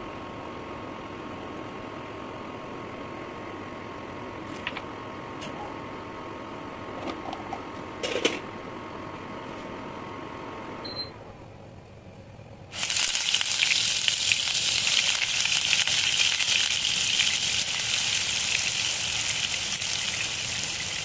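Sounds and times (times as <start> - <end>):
cooking oil heating hiss: 12.7 - 21.0.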